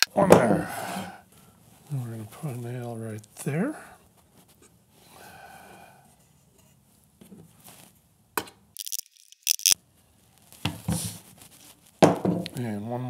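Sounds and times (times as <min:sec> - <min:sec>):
nails clinking: 0:08.8 - 0:09.8.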